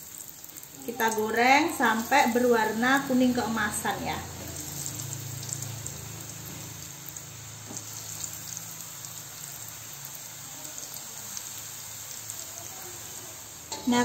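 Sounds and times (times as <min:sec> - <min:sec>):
deep-frying sizzle in hot oil: 0:00.0 - 0:14.0
oil crackles: 0:00.0 - 0:14.0.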